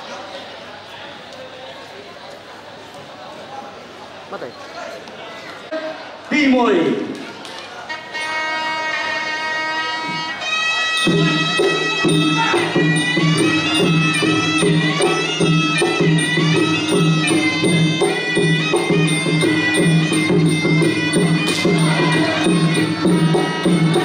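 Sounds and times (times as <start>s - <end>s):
reedy oboe melody: 7.9s - 24.0s
small cymbals: 8.2s - 24.0s
steady drum beat: 11.1s - 24.0s.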